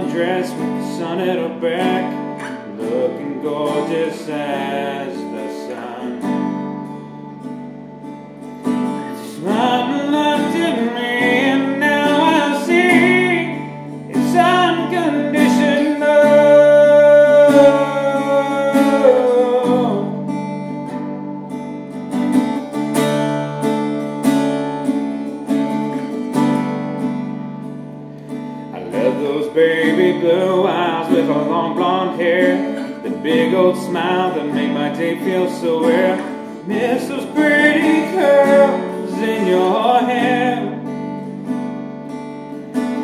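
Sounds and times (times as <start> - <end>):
man singing: 0.0 - 6.7, 8.9 - 20.4, 28.7 - 41.0
acoustic guitar strummed: 0.0 - 43.0.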